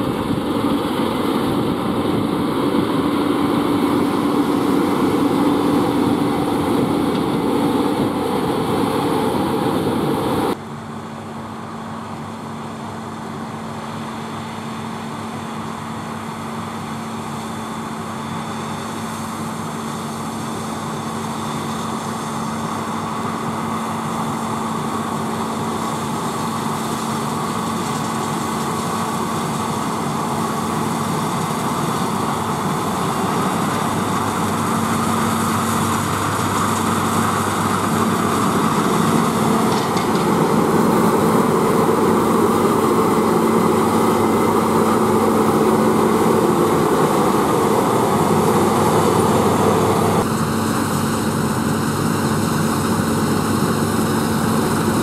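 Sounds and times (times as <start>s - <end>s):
threshing machinery rushing: 0.0s - 10.5s, 25.7s - 50.3s
combine harvester engine drone: 0.0s - 55.0s.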